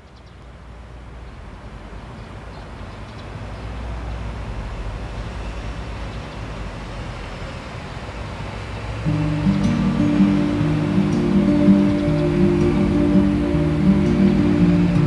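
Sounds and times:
traffic road noise rumble: 0:00.0 - 0:15.0
sustained low musical notes: 0:09.1 - 0:15.0.

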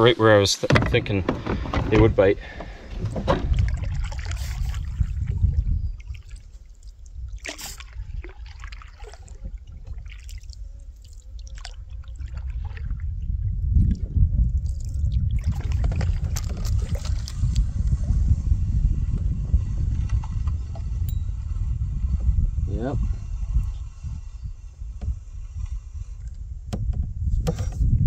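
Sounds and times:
wind rumble on microphone: 0:00.0 - 0:28.0
canoe paddle strokes: 0:00.6 - 0:28.0
water dripping off paddle: 0:03.5 - 0:13.0.

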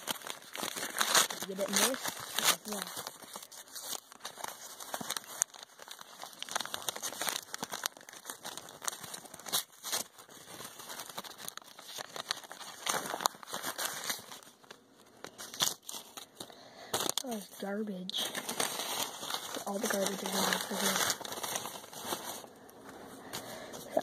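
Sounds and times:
paper crinkling and rustling: 0:00.0 - 0:24.0.

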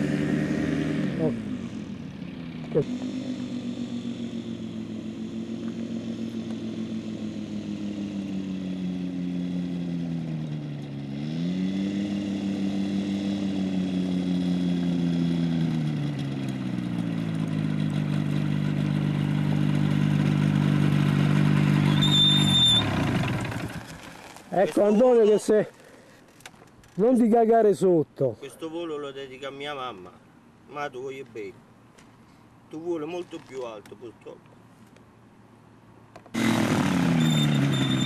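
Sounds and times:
ultralight aircraft engine: 0:00.0 - 0:24.3, 0:36.4 - 0:38.0.

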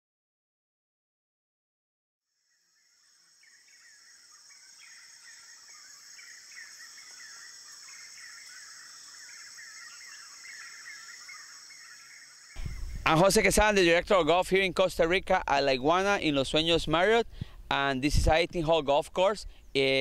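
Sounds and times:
insects droning: 0:02.3 - 0:13.7
birds chirping and calling: 0:03.0 - 0:13.2.

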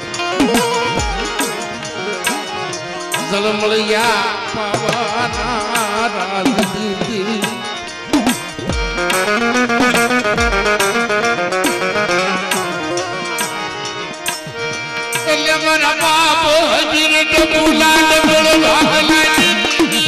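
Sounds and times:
hand drum beats: 0:00.0 - 0:03.6, 0:04.6 - 0:14.5
sustained melodic instruments: 0:00.0 - 0:20.0
quick wavering melody line: 0:00.1 - 0:03.8.

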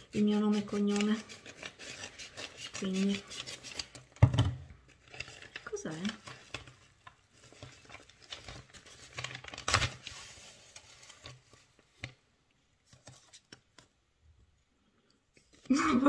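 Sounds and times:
paper mailer tearing and rustling: 0:05.0 - 0:11.4.

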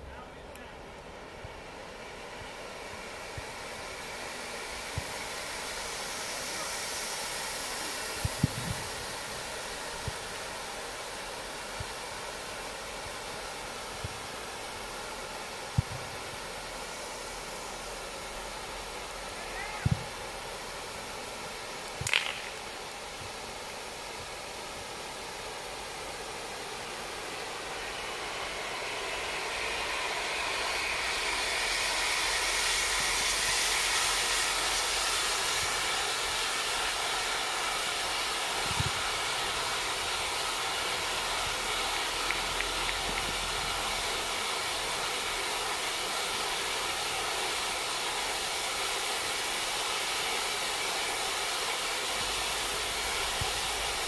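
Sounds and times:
firework sparks hissing: 0:00.0 - 0:54.0
spark fountains hissing: 0:00.6 - 0:54.0.

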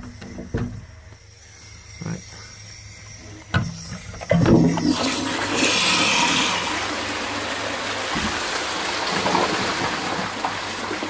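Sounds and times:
toilet flushing water rushing: 0:03.6 - 0:11.0.

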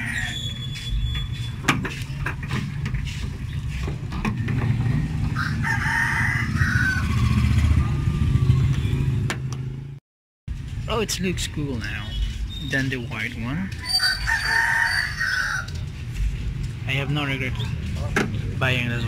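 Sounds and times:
rooster crowing: 0:00.0 - 0:00.6, 0:05.3 - 0:08.4, 0:13.8 - 0:15.8.

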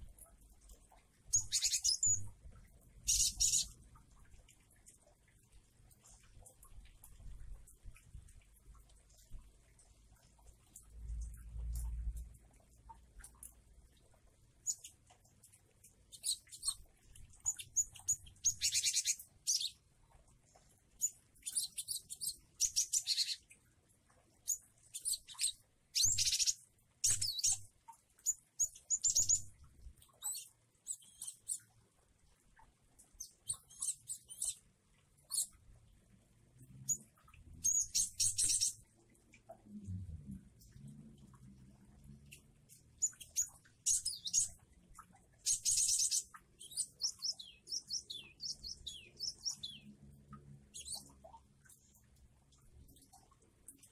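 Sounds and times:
bird chirping and trilling: 0:01.3 - 0:02.4, 0:03.0 - 0:03.8, 0:14.6 - 0:15.0, 0:16.1 - 0:19.9, 0:21.0 - 0:23.5, 0:24.4 - 0:29.5, 0:30.1 - 0:31.7, 0:33.2 - 0:34.6, 0:36.9 - 0:38.8, 0:43.0 - 0:44.6, 0:45.3 - 0:49.9, 0:50.7 - 0:51.2.

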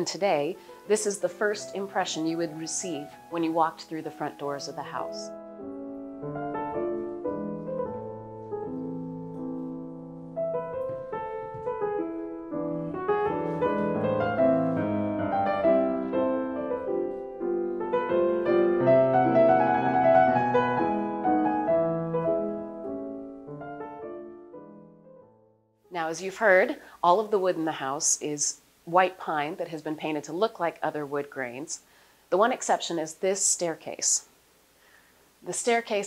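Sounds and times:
piano music: 0:00.0 - 0:25.9.

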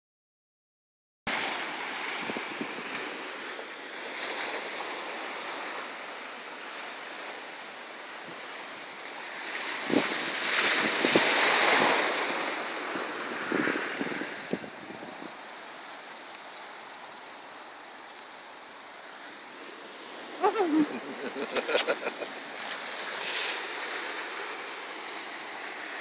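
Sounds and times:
wind noise on microphone: 0:01.3 - 0:03.2, 0:09.4 - 0:15.6
small waves breaking on beach: 0:01.3 - 0:26.0.

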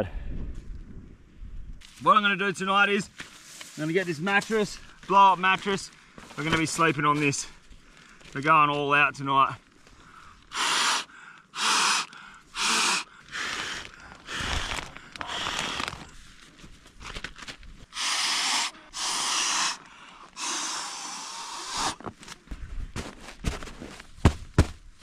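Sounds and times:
puffs of air inflating mattress: 0:10.5 - 0:13.8, 0:18.0 - 0:19.8, 0:20.4 - 0:22.0.

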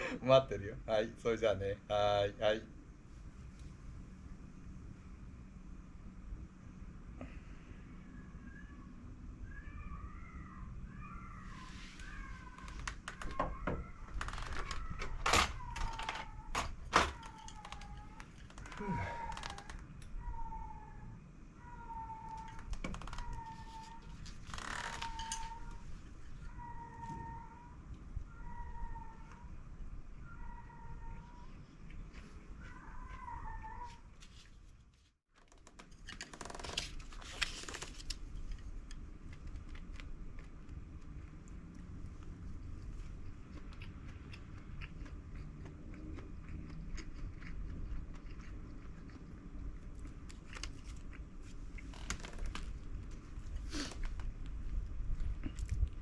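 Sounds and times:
rustling scrape: 0:11.5 - 0:12.7.

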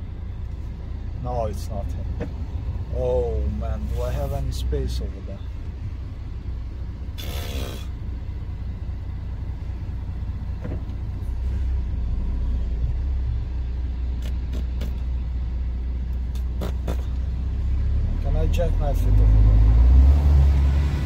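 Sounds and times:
lorry diesel engine rumbling: 0:00.0 - 0:21.0.

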